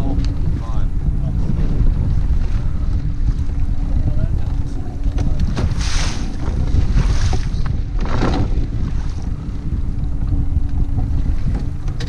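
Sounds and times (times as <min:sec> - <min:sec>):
water slapping against hull: 0:00.0 - 0:12.0
wind buffeting microphone: 0:00.0 - 0:12.0.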